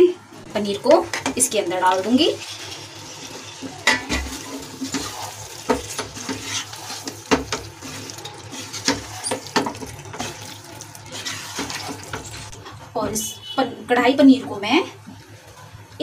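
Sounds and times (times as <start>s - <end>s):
spatula knocking pan: 3.8s - 7.7s, 8.6s - 10.5s
wet squelching of stirred gravy: 4.3s - 12.6s.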